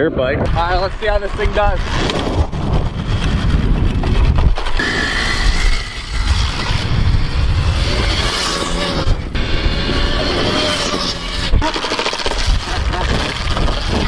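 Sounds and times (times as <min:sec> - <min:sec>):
wind buffeting microphone: 0:00.0 - 0:11.7, 0:12.3 - 0:14.0
electric dirt bike motor whine: 0:04.6 - 0:12.8.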